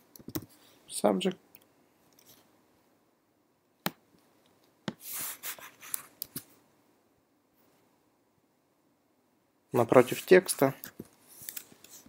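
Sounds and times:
keyboard and mouse clicks: 0:00.1 - 0:00.5.

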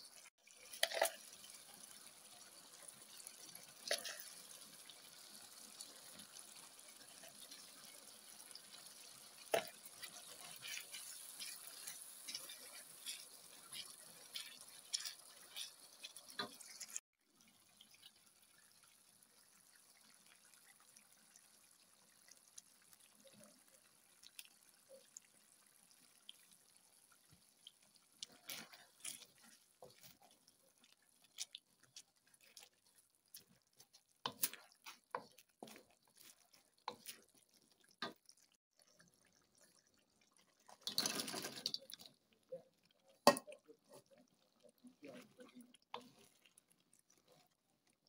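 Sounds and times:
wooden spatula knocking and scraping: 0:09.5 - 0:17.0, 0:33.8 - 0:37.2.

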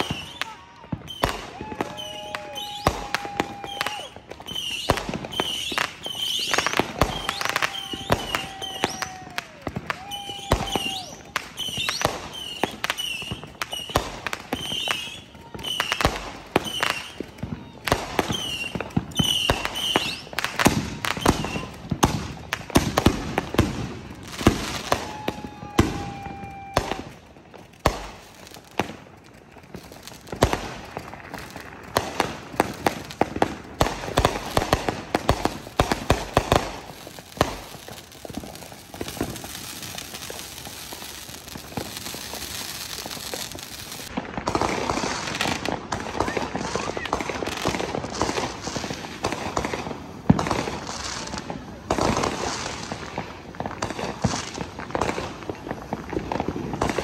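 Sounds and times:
firework whistle: 0:00.0 - 0:22.4, 0:24.4 - 0:27.2
fireworks bangs and crackles: 0:00.0 - 0:57.0.

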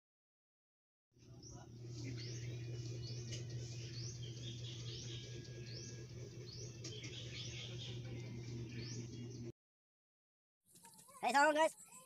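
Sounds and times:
steady low hum: 0:01.2 - 0:09.5
bird chirping: 0:01.3 - 0:09.5.

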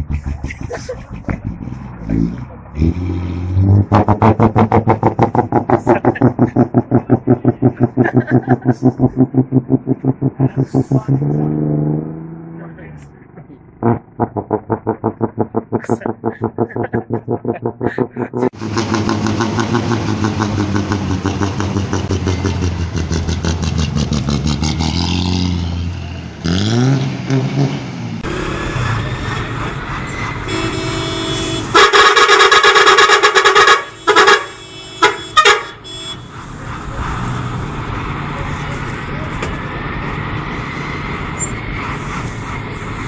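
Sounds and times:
bus diesel engine revving: 0:00.0 - 0:13.1, 0:13.8 - 0:43.0
bus air horn: 0:30.4 - 0:36.4.

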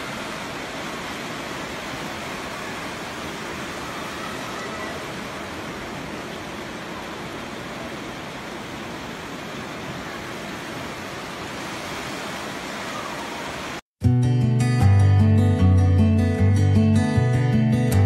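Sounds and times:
whitewater rushing over rocks: 0:00.0 - 0:13.8
guitar music: 0:14.0 - 0:18.0.

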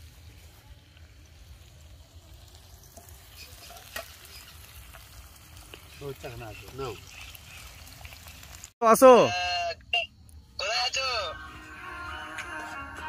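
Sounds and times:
food sizzling in a pan: 0:00.0 - 0:08.8.

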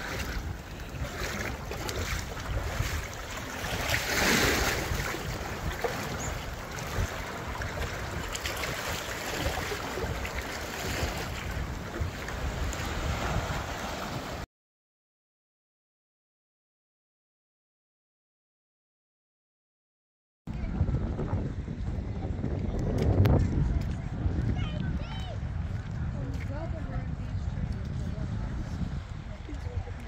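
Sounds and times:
sea waves washing through rocks: 0:00.0 - 0:14.4
wind buffeting microphone: 0:00.0 - 0:14.4, 0:20.5 - 0:30.0.

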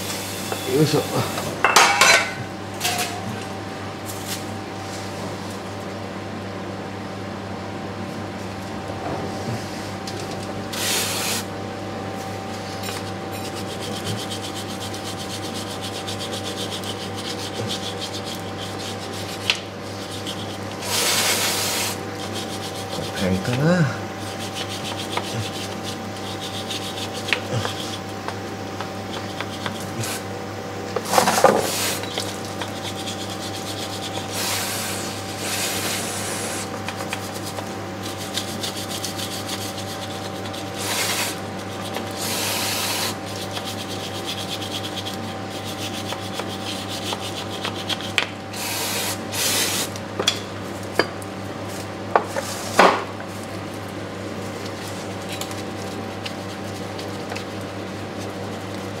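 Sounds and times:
steady background hum: 0:00.0 - 0:59.0
metal scraper scraping grime: 0:12.8 - 0:28.2, 0:37.2 - 0:48.8
aerosol can spraying: 0:20.8 - 0:22.0.

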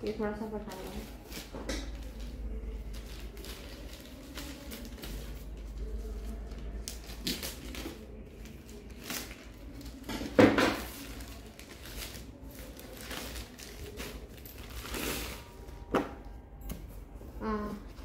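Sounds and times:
paper booklets rustling: 0:00.5 - 0:16.3
plastic pouch crinkling and tearing: 0:10.8 - 0:15.6.

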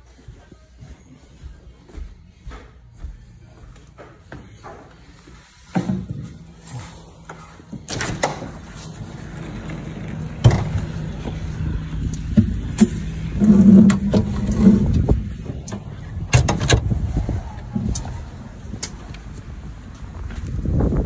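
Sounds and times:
low rumble of handling: 0:06.6 - 0:21.0.

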